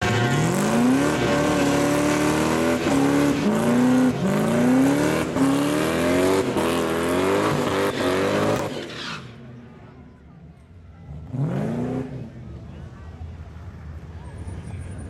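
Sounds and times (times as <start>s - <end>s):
car engine revving hard: 0.0s - 8.9s, 11.1s - 12.3s.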